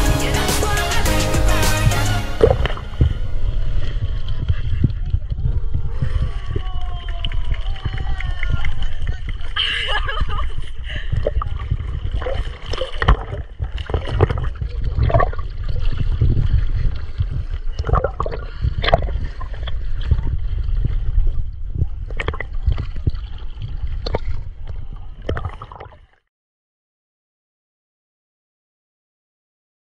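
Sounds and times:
short sharp splashes: 1.6 - 3.2
seawater sloshing and splashing: 1.8 - 26.2
low rumble of water buffeting: 1.8 - 26.3.

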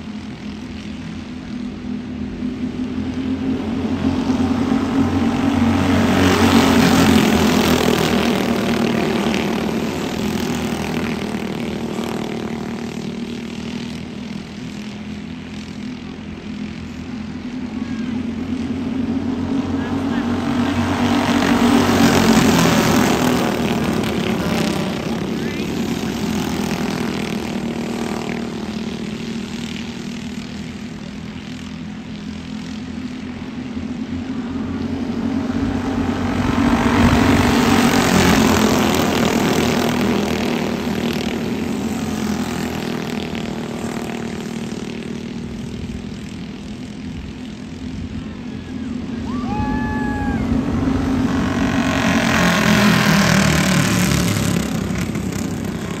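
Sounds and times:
kart engines buzzing: 0.0 - 56.0.

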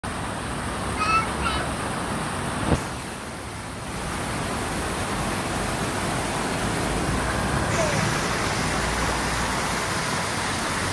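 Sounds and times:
distant road traffic hiss: 0.1 - 10.9.

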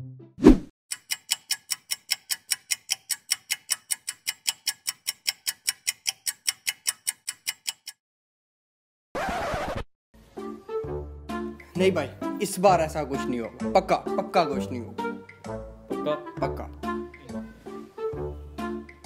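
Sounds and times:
clock ticking: 0.9 - 8.0, 15.2 - 15.7, 18.7 - 19.0.

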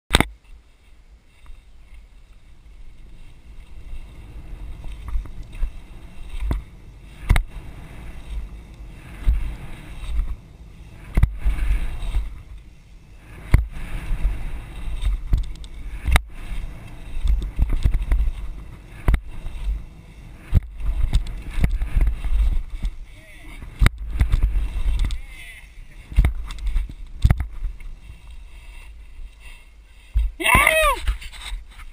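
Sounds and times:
bike tyres rolling over dirt: 0.1 - 31.9
wind buffeting microphone: 0.2 - 31.9.

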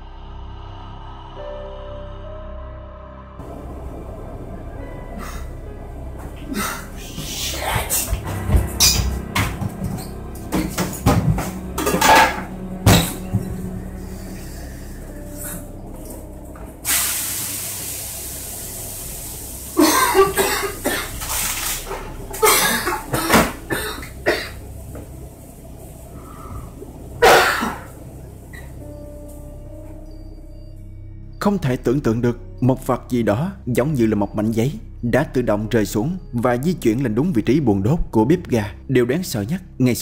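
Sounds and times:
hissing rush: 3.4 - 8.3, 13.6 - 28.8
pan and cupboard knocks and bangs: 8.5 - 13.5.

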